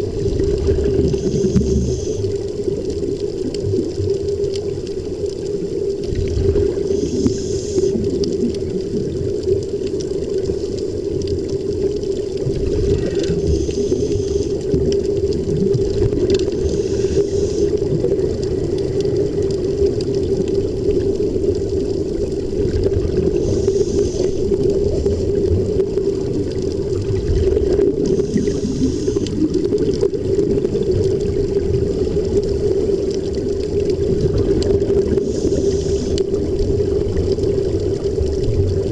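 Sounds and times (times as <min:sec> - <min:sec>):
hiss of air bubbles: 0:00.0 - 0:38.9
steady underwater hum: 0:00.0 - 0:38.9.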